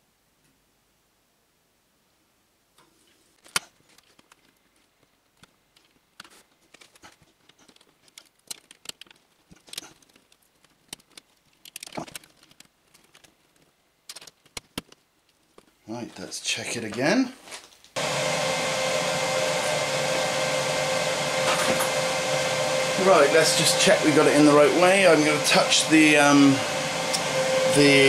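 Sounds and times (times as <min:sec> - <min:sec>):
rustling of hands handling: 0:02.7 - 0:18.0
small plastic clicks: 0:02.8 - 0:15.7.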